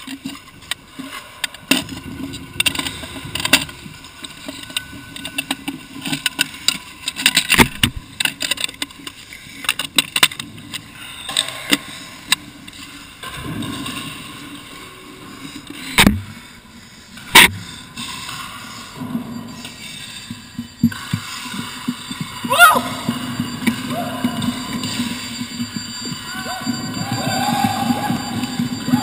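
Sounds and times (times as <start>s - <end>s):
small clicks and scrapes: 0.0s - 13.2s.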